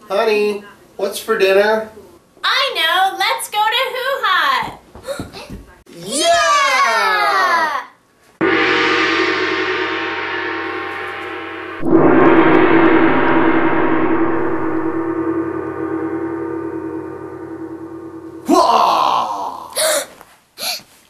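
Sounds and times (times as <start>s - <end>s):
gong ringing: 8.4s - 19.7s.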